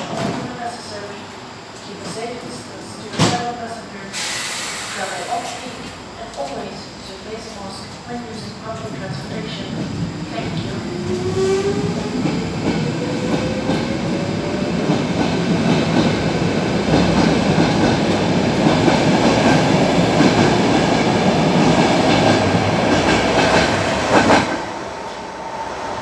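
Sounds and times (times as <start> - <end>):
metro train motors whining: 0.0 - 26.0.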